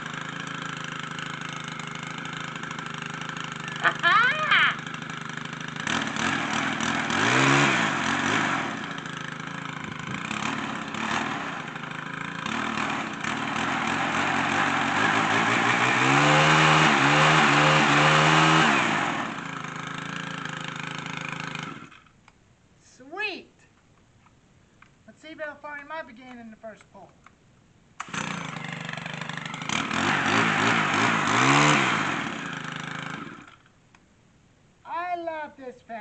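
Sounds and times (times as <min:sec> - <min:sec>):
string trimmer engine idling and revving: 0:00.0 - 0:22.2, 0:28.0 - 0:33.8.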